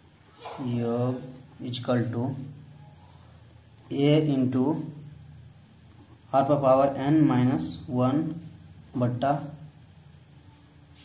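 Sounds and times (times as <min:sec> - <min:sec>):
cricket trilling: 0:00.0 - 0:11.0
man speaking: 0:06.4 - 0:08.4, 0:09.0 - 0:09.5.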